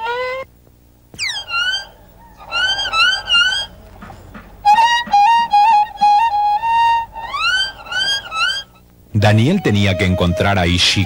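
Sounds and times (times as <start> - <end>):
violin playing: 2.5 - 8.7.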